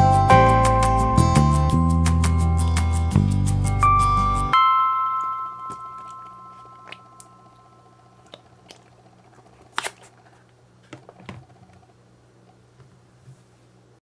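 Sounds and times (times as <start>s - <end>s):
background music chord: 0.0s - 8.0s
slime squishing: 8.2s - 10.5s.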